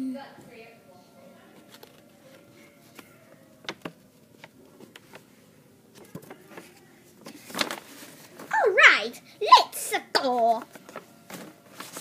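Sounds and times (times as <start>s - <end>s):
paper crinkling: 1.6s - 8.8s, 10.1s - 12.0s.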